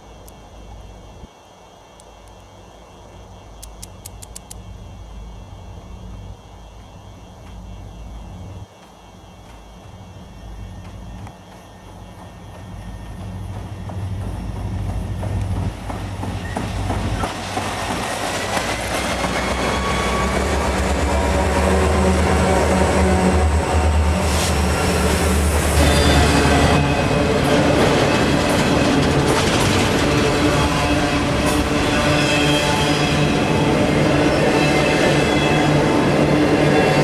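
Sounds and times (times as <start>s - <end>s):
diesel locomotive engines: 0.0s - 37.0s
freight cars wheel and rail noise: 0.0s - 37.0s
wheel squeal: 19.1s - 20.7s.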